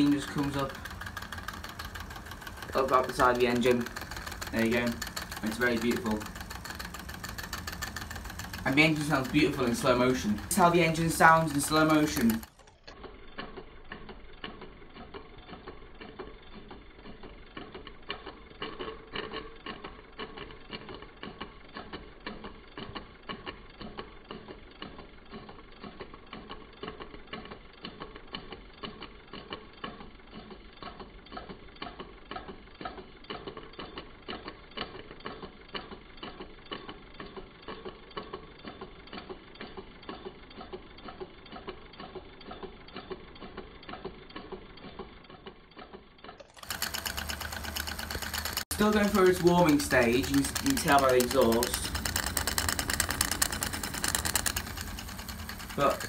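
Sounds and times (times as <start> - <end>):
steam engine exhaust chuffing: 0.0 - 12.6, 46.6 - 56.0
mechanism ticking: 0.0 - 56.0.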